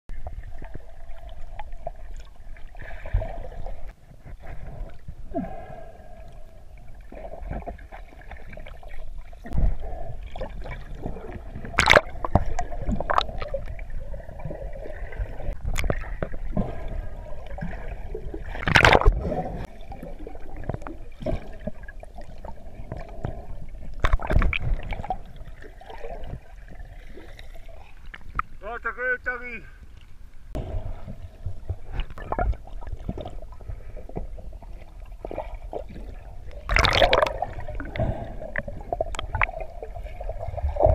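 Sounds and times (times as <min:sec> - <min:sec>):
sharp knocks or splashes: 0:36.7 - 0:37.4.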